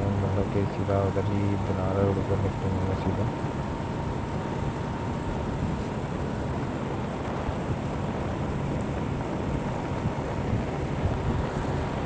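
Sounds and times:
wind on microphone: 0:02.4 - 0:12.0.

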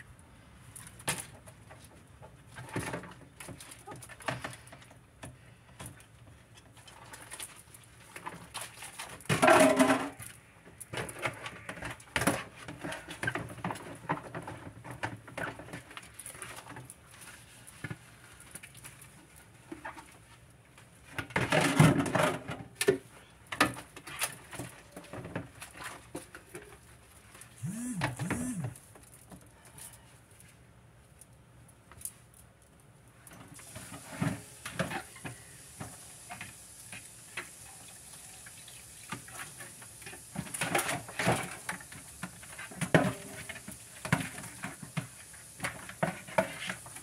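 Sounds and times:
hum-like tone: 0:27.6 - 0:28.8.

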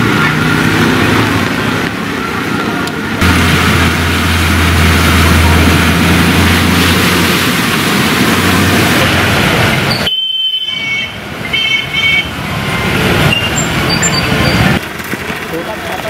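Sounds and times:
vehicle engines humming: 0:00.0 - 0:16.0
water splashing off tyres: 0:02.9 - 0:16.0
short high horn beeps: 0:09.9 - 0:12.2.

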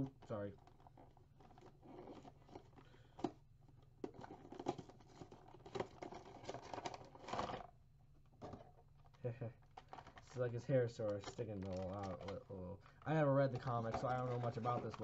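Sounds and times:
packaging rustling and clicking: 0:00.0 - 0:07.7, 0:08.3 - 0:15.0
packaging tearing or crinkling: 0:09.8 - 0:12.4, 0:13.8 - 0:15.0.

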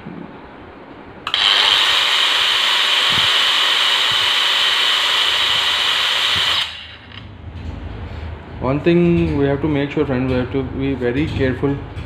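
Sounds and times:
angle grinder motor whining: 0:01.3 - 0:07.3.

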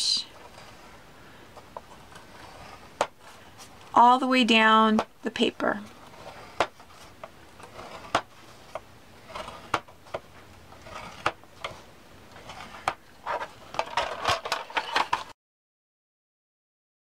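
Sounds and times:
paper rustling: 0:00.3 - 0:03.9, 0:05.8 - 0:15.4.

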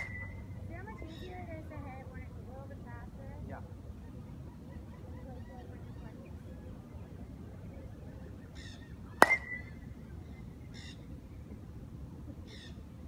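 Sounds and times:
baseball bat hitting ball: 0:00.0 - 0:00.4, 0:09.2 - 0:09.8.

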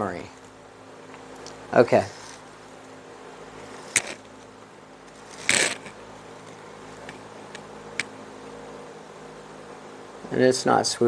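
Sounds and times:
faint steady hum: 0:00.0 - 0:11.0
rustling scrape of chair cane: 0:02.0 - 0:02.4, 0:05.1 - 0:06.0.

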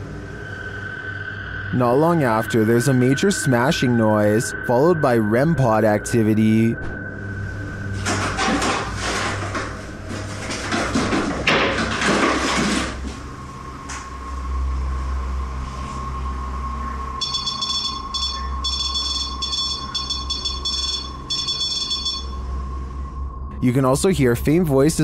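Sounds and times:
steady electronic alarm tone: 0:00.3 - 0:08.0, 0:16.4 - 0:23.6
high electronic beeping: 0:17.2 - 0:22.5.

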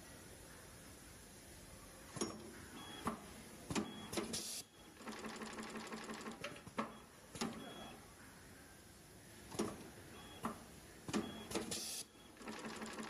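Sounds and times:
machine clacks: 0:12.4 - 0:13.0.

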